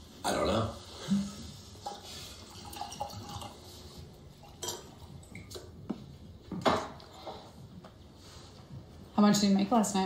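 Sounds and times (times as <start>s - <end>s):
wine pouring into glass: 2.5s - 3.6s.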